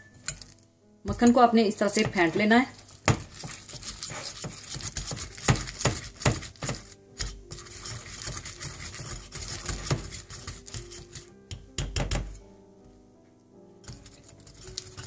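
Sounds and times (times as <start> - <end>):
whisk scraping against bowl: 2.0 - 11.3, 13.8 - 15.0.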